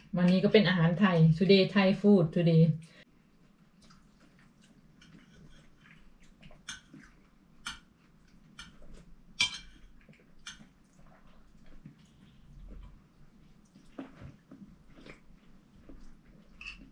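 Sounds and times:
faint chewing: 3.1s - 16.9s
cutlery clinking on plates: 9.4s - 9.9s.

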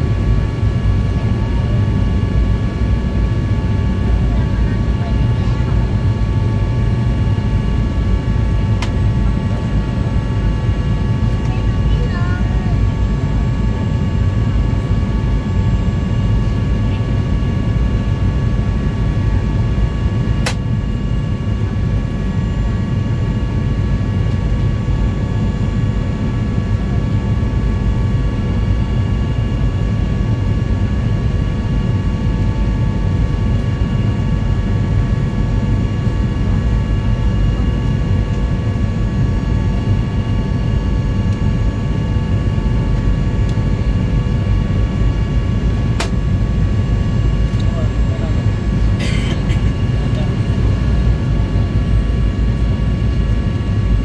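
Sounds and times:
airliner cabin engine rumble: 0.0s - 54.0s
sharp click: 20.4s - 20.6s.

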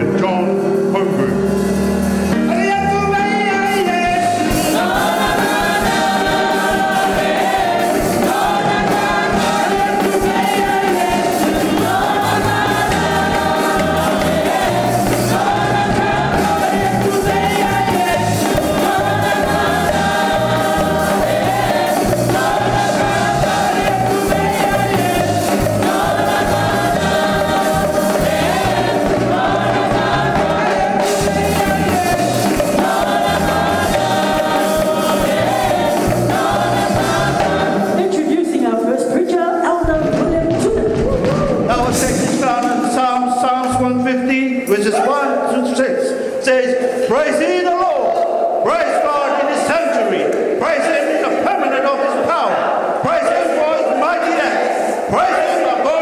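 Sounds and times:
instrumental backing with bass: 0.0s - 38.2s
choir singing gospel song: 0.0s - 56.0s.

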